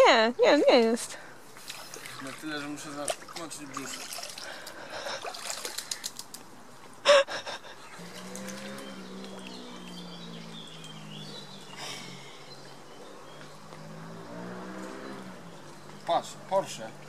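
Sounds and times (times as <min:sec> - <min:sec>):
birds chirping faintly: 0:00.0 - 0:17.0
water splashing by hand: 0:01.6 - 0:06.4.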